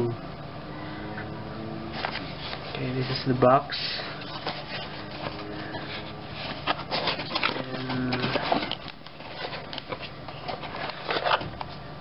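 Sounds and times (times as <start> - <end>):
cardboard flaps scraping: 4.0 - 11.6
plastic clicks and rustles: 6.4 - 11.7.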